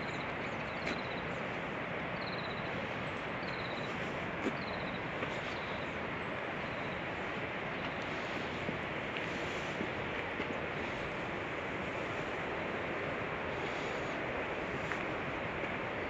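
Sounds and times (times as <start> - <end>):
outdoor background noise: 0.0 - 16.0
small bird calling: 3.4 - 6.0.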